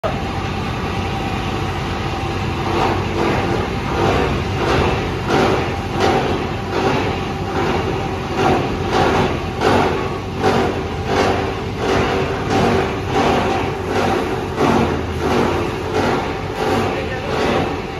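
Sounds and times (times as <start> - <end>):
granulator machine humming: 0.0 - 17.9
wire crunching in rotor: 2.6 - 17.9.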